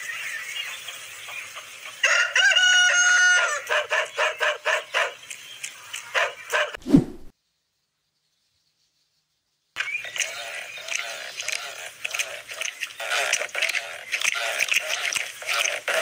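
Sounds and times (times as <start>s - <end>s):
rooster crowing: 2.0s - 3.7s.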